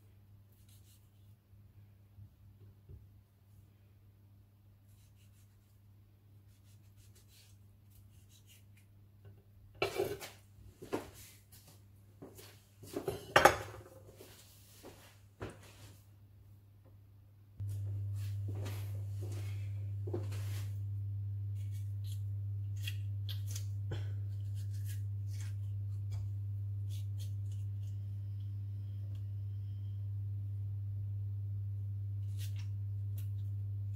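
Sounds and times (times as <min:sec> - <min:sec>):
steady low hum: 0:09.1 - 0:33.9.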